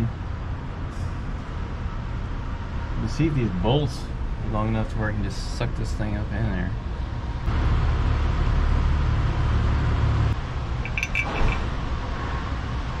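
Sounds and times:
tools clinking on metal: 10.8 - 11.7.

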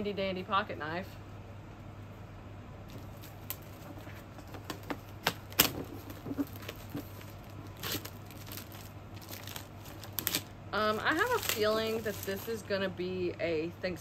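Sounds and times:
cardboard and paper rustling: 2.9 - 12.6.

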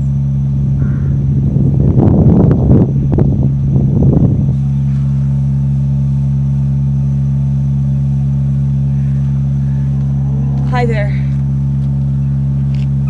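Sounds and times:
low machine hum: 0.0 - 13.0
rough rumbling noise: 0.0 - 13.0.

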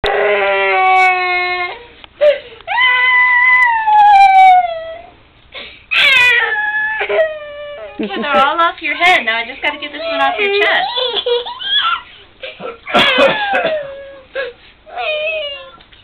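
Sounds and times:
young boy crying: 5.9 - 8.4, 10.0 - 15.8.

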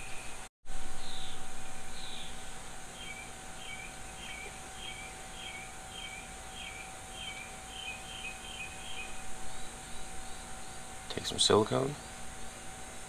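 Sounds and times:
faint steady hum: 0.0 - 13.0
bird calling: 1.0 - 10.8.

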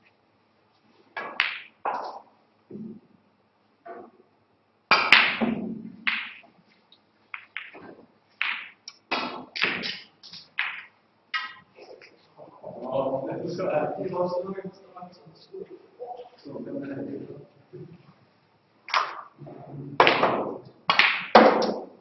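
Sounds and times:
snooker balls colliding: 1.1 - 3.0, 4.9 - 6.6, 7.3 - 12.1, 18.9 - 19.4, 20.0 - 22.0
cue striking snooker ball: 1.2 - 2.9, 4.9 - 6.5, 7.4 - 10.0, 10.6 - 11.6, 18.9 - 19.3, 20.0 - 21.9
balls hitting cushions: 4.9 - 6.5, 7.3 - 10.0.

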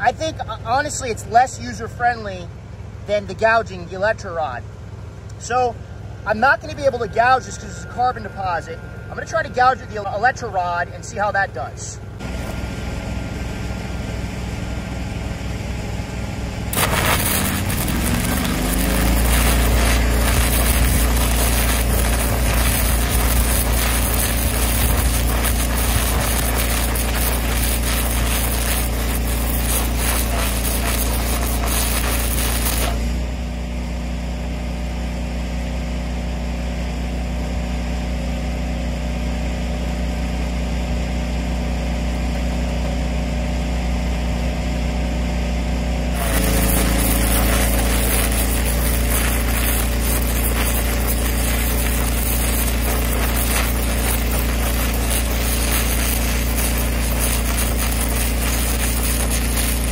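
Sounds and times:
engine running: 0.0 - 59.9
harsh crackling arc: 6.2 - 12.5, 16.7 - 33.5, 46.1 - 59.9.

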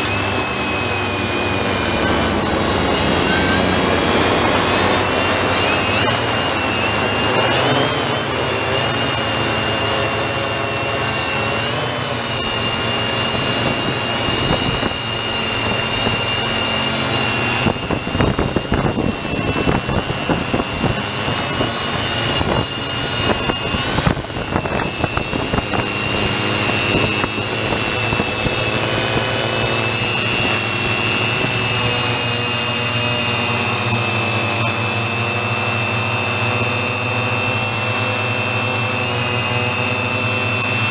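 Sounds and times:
drone motors whining: 0.0 - 40.9
gusty rumble: 17.6 - 28.5.

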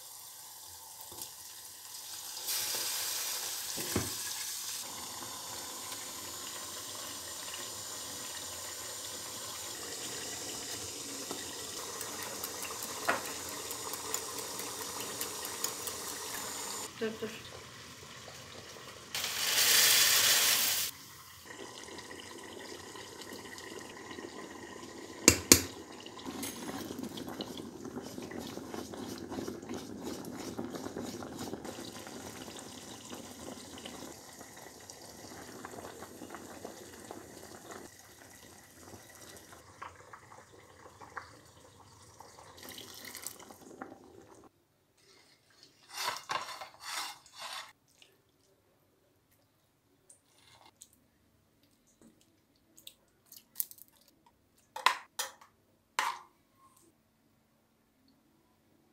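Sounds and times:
oil hissing in boiling water: 0.0 - 44.5
water boiling: 0.0 - 44.5.

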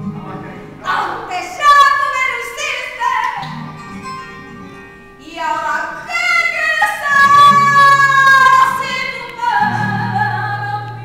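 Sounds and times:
woman singing flamenco: 0.8 - 3.8, 5.2 - 11.0.

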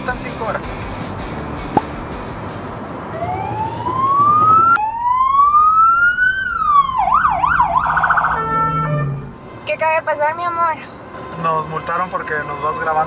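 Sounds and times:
car road noise: 0.0 - 13.0
police siren wailing and yelping: 3.2 - 9.4.

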